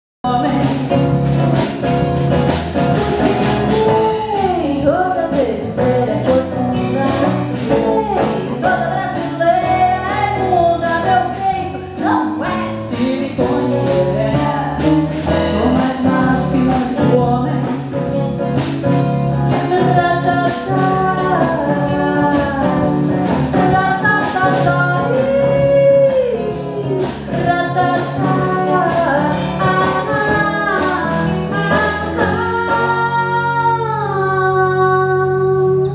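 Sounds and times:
live band with guitars: 0:00.2 - 0:35.9
woman singing through microphone: 0:00.3 - 0:01.1, 0:03.8 - 0:18.6, 0:19.5 - 0:35.9
drum and cymbal strikes: 0:11.0 - 0:21.6.

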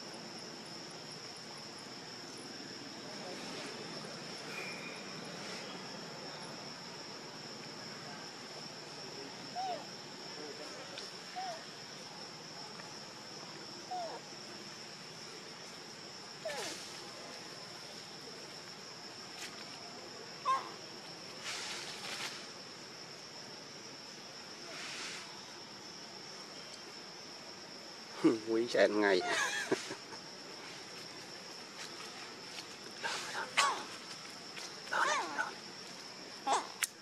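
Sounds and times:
insects droning: 0:00.0 - 0:37.0
rustling: 0:21.3 - 0:22.6.

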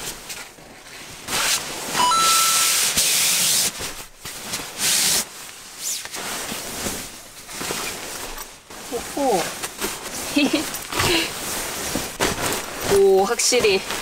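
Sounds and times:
sleeping bag shell rustling: 0:05.6 - 0:14.0.

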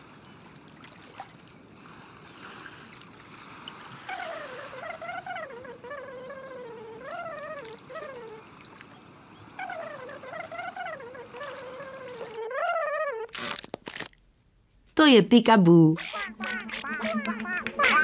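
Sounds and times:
warbling cartoon tone: 0:09.7 - 0:13.7, 0:15.9 - 0:18.0.

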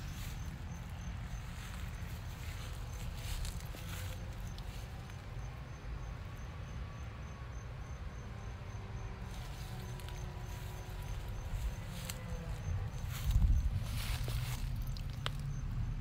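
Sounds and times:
insect chirping: 0:00.0 - 0:16.0
low microphone rumble: 0:10.4 - 0:15.4.

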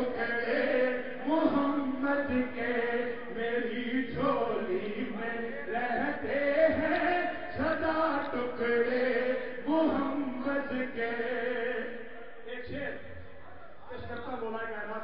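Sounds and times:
man chanting into microphone: 0:00.0 - 0:15.0.

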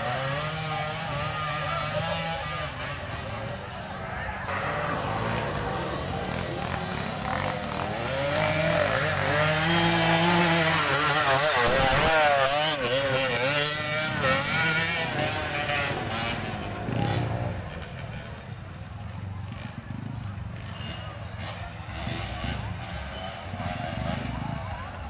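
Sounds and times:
dirt bike engine revving: 0:00.0 - 0:25.0.

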